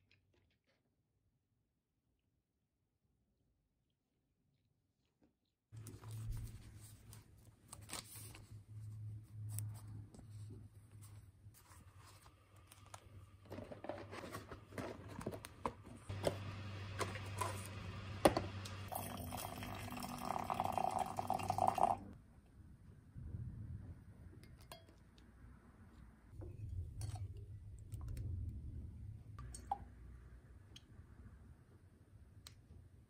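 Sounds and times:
water pouring into jug: 18.9 - 22.1.

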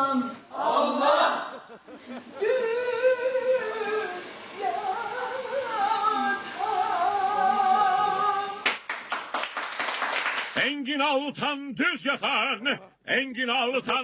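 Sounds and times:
woman singing: 2.4 - 8.6
hand claps: 8.6 - 10.6.

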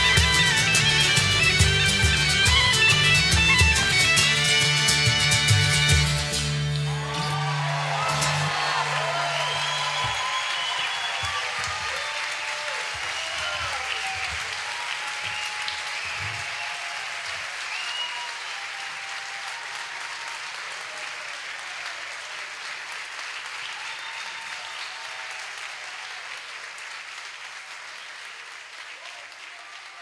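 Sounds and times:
audience applauding and cheering: 0.0 - 30.0
shouts and whistles: 6.9 - 21.3, 23.6 - 25.3.

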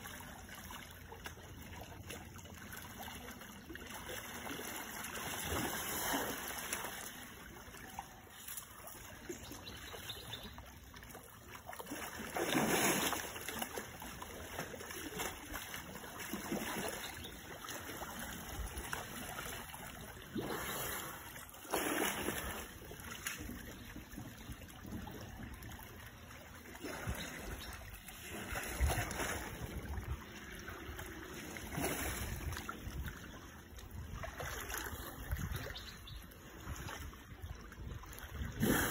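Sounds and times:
muddy water sloshing and splashing: 0.0 - 38.9.

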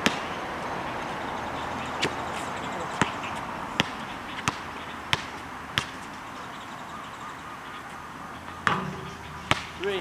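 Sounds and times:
basketball bouncing on asphalt: 2.9 - 6.3, 8.6 - 9.9.

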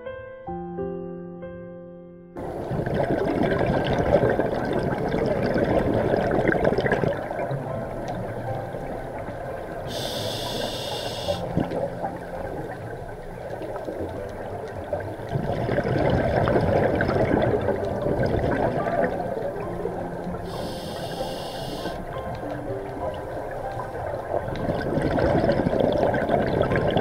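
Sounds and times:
exhaled bubbles rushing: 2.4 - 27.0
regulator inhalation hiss: 9.9 - 11.5, 20.4 - 22.0.

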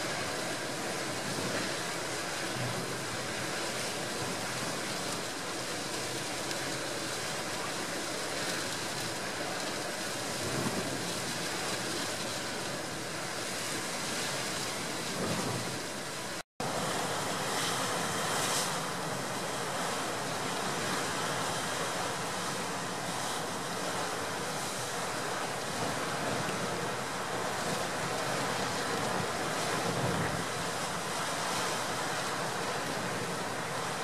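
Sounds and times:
gale wind on microphone: 9.5 - 34.0.

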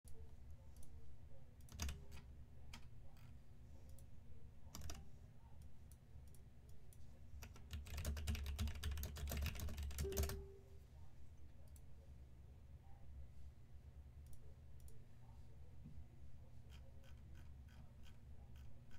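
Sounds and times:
computer keyboard typing: 1.6 - 2.9, 4.7 - 5.0, 7.4 - 10.6.

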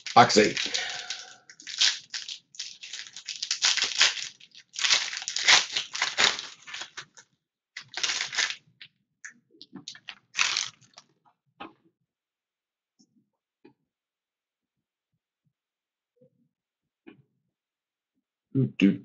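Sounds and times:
foil wrapper crinkling: 0.0 - 7.2, 7.8 - 8.8, 9.8 - 11.0.

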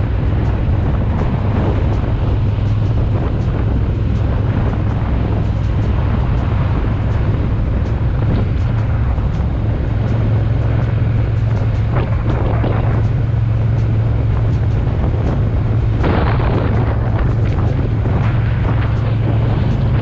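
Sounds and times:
motorcycle engine cruising: 0.0 - 20.0
wind rushing over microphone: 0.0 - 20.0.

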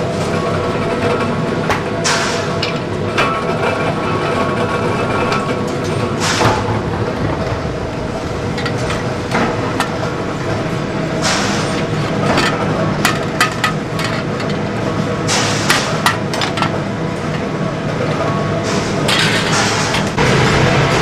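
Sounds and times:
steady hum: 0.0 - 21.0.

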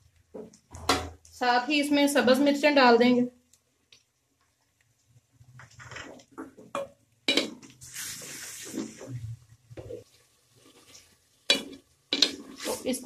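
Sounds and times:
spatula scraping frying onions: 5.5 - 13.0.

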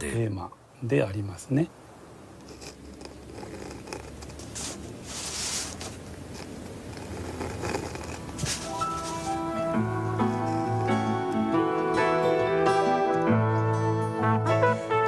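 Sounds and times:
pen scratching on paper: 2.4 - 11.2.

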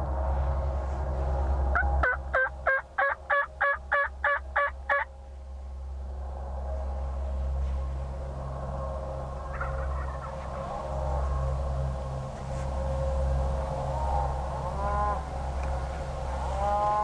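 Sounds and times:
turkey yelps: 2.0 - 5.1, 9.5 - 10.6.

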